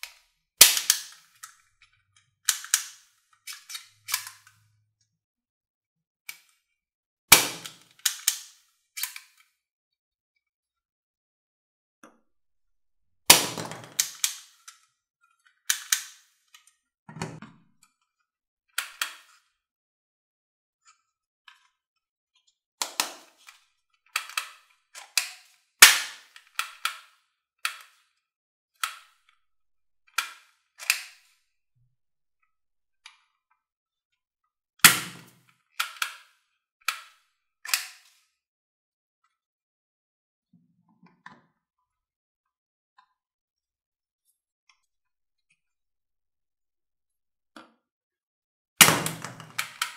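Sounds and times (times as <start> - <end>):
plastic toy guns clicking: 0.0 - 1.6, 2.4 - 4.6, 7.3 - 9.5, 13.3 - 14.8, 15.7 - 16.4, 22.8 - 28.0, 30.1 - 31.4, 34.8 - 38.2, 48.8 - 49.9.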